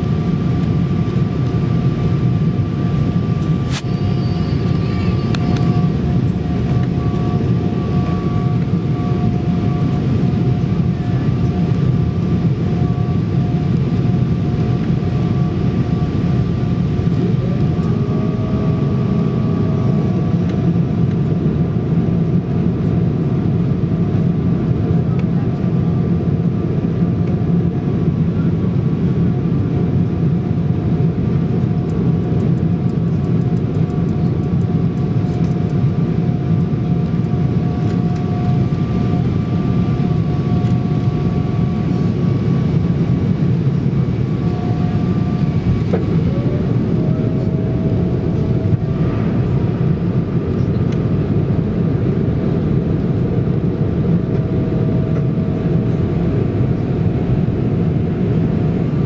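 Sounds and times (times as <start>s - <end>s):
engine and airflow roar: 0.0s - 59.0s
thin engine whine: 0.1s - 20.6s, 37.2s - 53.1s.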